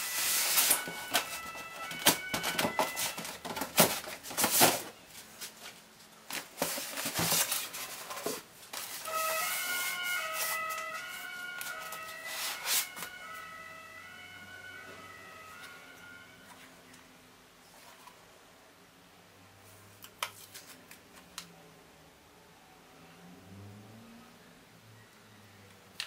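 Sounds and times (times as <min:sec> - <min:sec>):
faint tune of held notes: 0:00.0 - 0:03.7, 0:09.0 - 0:17.3
cardboard and polystyrene knocks and rustles: 0:00.2 - 0:05.6, 0:06.3 - 0:10.6.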